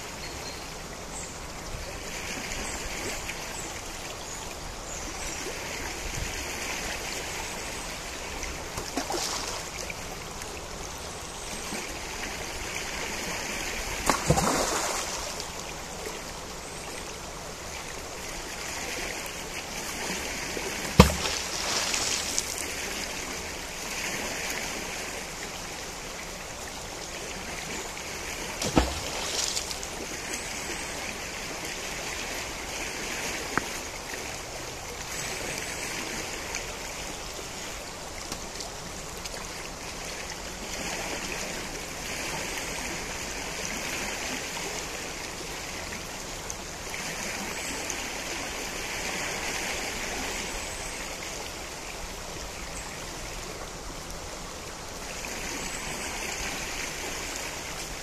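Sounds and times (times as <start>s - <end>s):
river water rushing: 0.0s - 58.0s
sharp knock: 21.0s - 21.4s.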